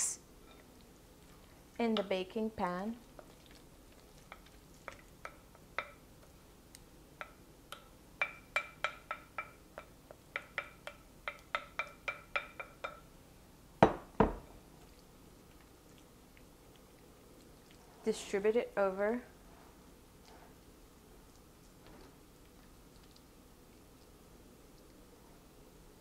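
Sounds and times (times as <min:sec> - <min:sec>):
spoon clinking against glass bowl: 0:08.2 - 0:13.0
glass bowl set down on counter: 0:13.8 - 0:14.4.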